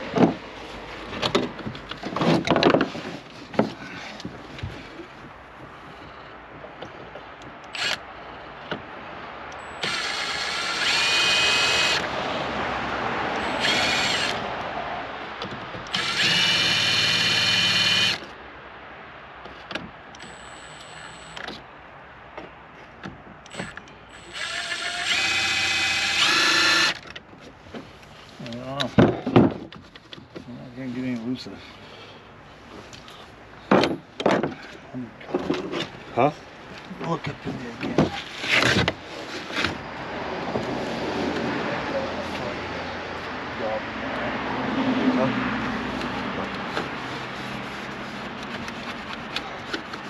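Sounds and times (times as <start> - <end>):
cordless drill whining: 7.7 - 8.0, 9.6 - 12.1, 13.4 - 14.4, 15.9 - 18.2, 20.2 - 21.4, 23.5 - 27.0.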